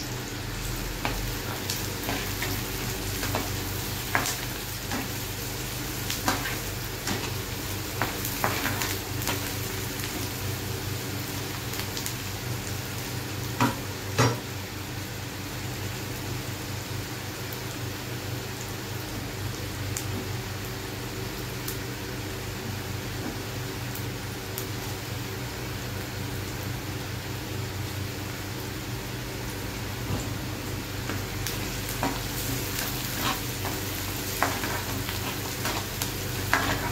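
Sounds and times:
onions sizzling in oil: 0.0s - 36.9s
spatula scraping and knocking pan: 32.0s - 36.9s.

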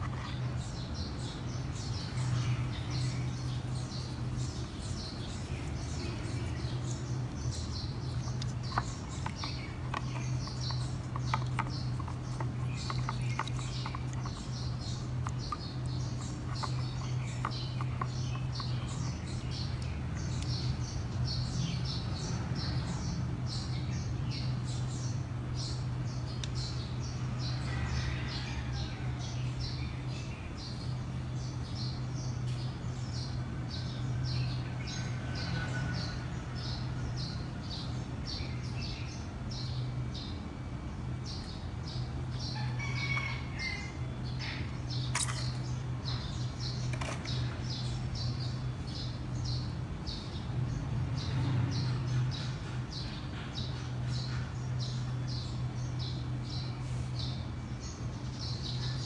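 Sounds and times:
small bird chirping: 0.0s - 59.0s.

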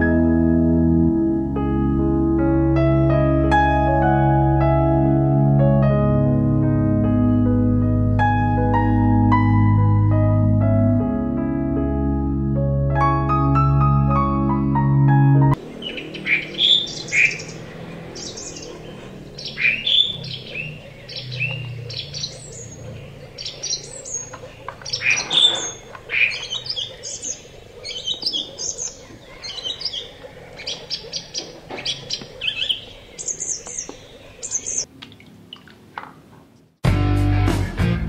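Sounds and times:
small birds chirping: 15.6s - 35.8s.

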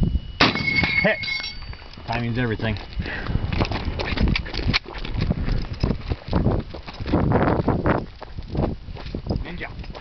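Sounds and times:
footsteps crunching on gravel: 1.6s - 10.0s.

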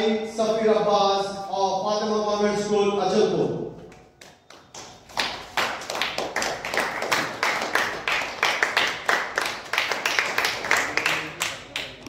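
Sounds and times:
audience clapping: 3.9s - 12.0s.

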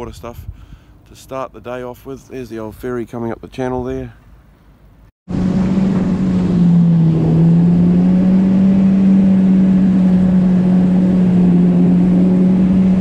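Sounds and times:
jet ski engine droning: 5.3s - 13.0s.

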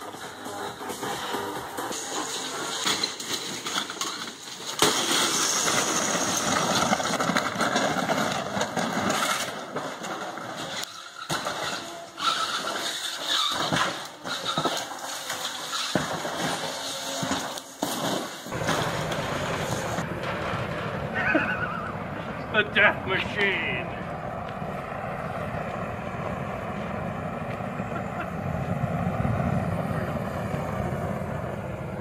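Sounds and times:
appliance scraping and clattering: 0.0s - 20.5s
sharp crash: 1.9s - 9.9s.

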